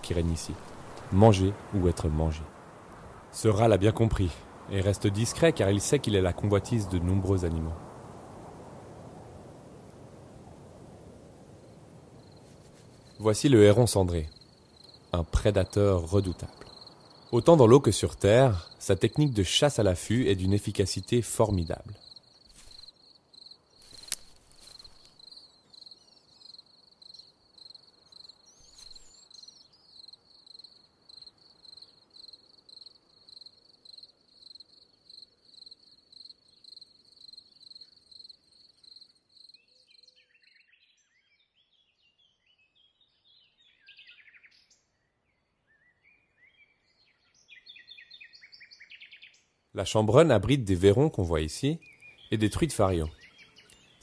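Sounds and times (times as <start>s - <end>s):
cricket chirping: 7.8s - 19.5s, 20.2s - 40.6s
faint bird chirps: 11.6s - 49.6s, 51.3s - 54.0s.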